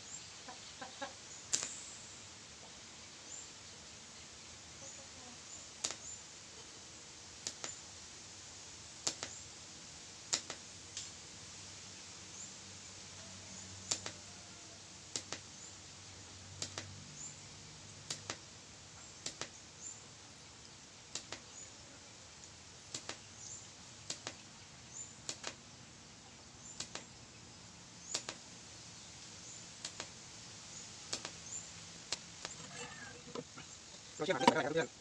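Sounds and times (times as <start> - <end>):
faint welder hiss: 1.3 - 35.0
welding arc cracks: 1.4 - 2.3, 5.7 - 6.2, 7.4 - 7.8, 9.0 - 9.4, 10.2 - 11.1, 13.8 - 14.3, 15.1 - 15.7, 16.5 - 17.1, 18.0 - 18.5, 19.1 - 19.6, 21.1 - 21.6, 22.9 - 24.4, 25.2 - 25.6, 26.7 - 27.1, 28.0 - 28.4, 29.4 - 32.6.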